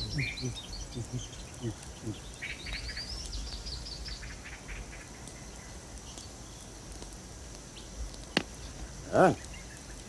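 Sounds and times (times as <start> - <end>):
pitched vocal call: 0.0 - 2.2
faint high outdoor hiss: 0.0 - 10.0.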